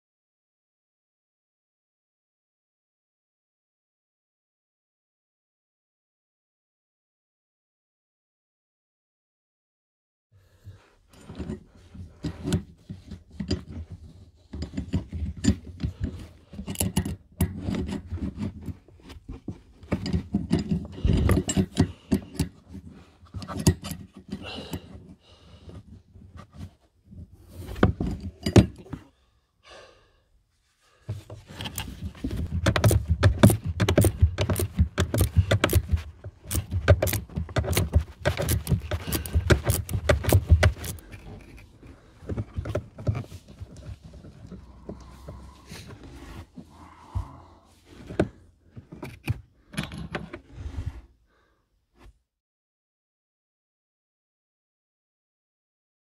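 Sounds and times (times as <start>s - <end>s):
wrenches clicking on metal: 14.6s - 18.8s, 19.9s - 22.6s, 31.5s - 41.8s.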